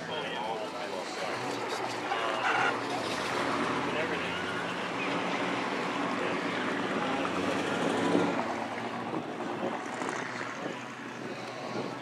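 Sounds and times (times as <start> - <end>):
low hum of engines: 0.0 - 12.0
wind on microphone: 7.6 - 12.0.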